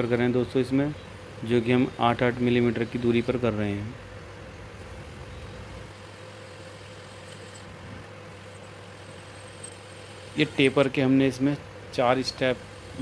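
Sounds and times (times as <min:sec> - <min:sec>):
lathe humming: 0:05.8 - 0:13.0.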